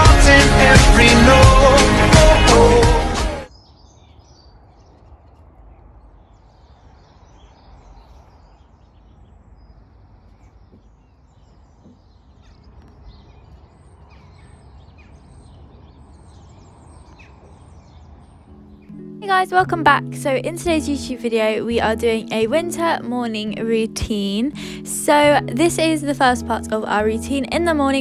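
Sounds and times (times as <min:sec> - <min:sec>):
music: 0:00.0 - 0:03.5, 0:18.5 - 0:28.0
faint bird chirps: 0:03.5 - 0:19.0.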